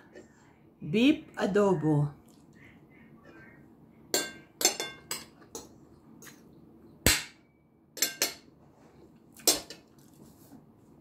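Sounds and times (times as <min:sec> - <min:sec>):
metal spoon clinking on plate: 0:04.1 - 0:05.7, 0:08.0 - 0:08.5.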